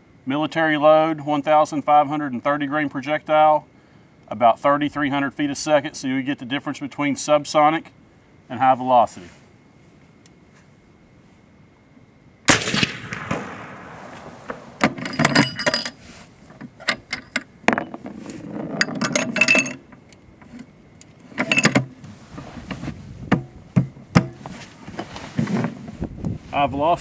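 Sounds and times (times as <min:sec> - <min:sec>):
suppressed rifle shot: 0:12.5 - 0:15.0
metallic bolt clicks and clinks: 0:14.8 - 0:16.0, 0:16.8 - 0:18.0, 0:18.8 - 0:20.6.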